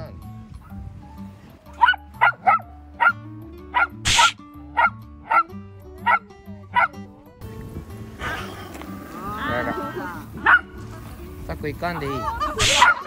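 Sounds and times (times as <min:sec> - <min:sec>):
background music with low notes: 0:00.0 - 0:13.0
small dog barking: 0:01.8 - 0:03.2, 0:03.8 - 0:06.2, 0:06.8 - 0:07.0, 0:10.4 - 0:10.7, 0:12.6 - 0:13.0.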